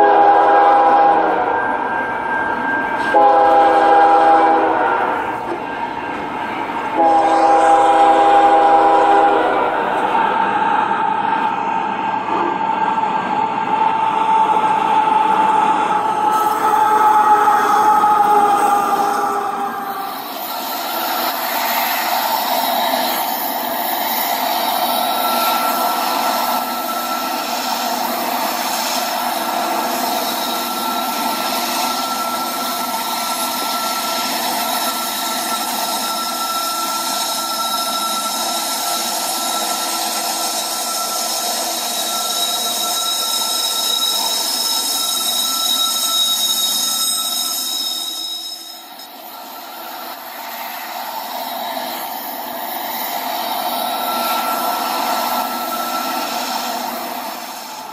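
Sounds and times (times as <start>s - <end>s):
thin whine: 14.4s - 57.9s
model train wheels whirring: 18.0s - 57.9s.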